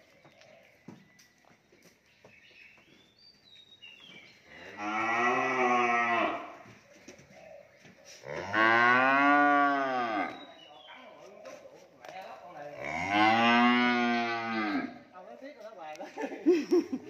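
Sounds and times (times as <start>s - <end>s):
cattle mooing: 4.5s - 6.6s, 8.3s - 10.4s, 12.8s - 15.0s.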